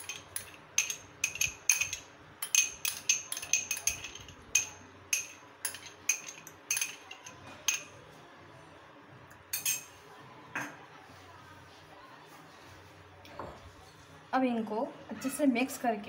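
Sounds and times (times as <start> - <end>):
metal spoon clinking on glass bowl: 0.0 - 7.9, 9.5 - 9.9.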